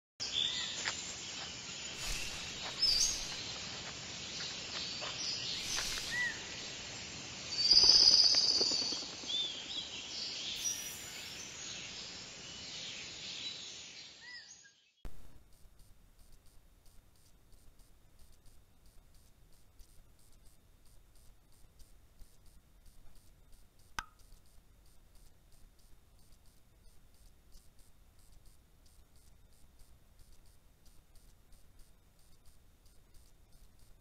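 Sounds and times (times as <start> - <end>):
bird chirps: 1.8 - 3.6, 5.0 - 6.7, 7.6 - 15.0
faint rapid ticking: 15.1 - 34.0.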